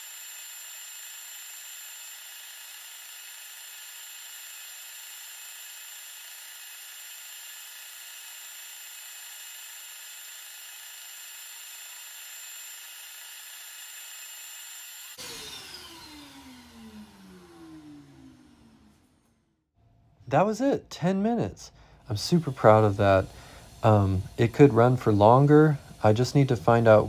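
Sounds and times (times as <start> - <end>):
vacuum engine hissing: 0.0 - 18.3, 21.5 - 27.0
machinery spinning down whine: 11.6 - 19.1.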